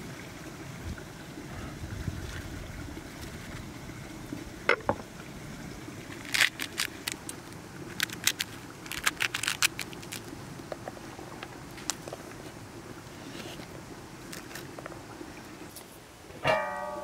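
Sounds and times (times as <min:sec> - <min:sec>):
fruit splitting with crackles: 0:06.2 - 0:10.3.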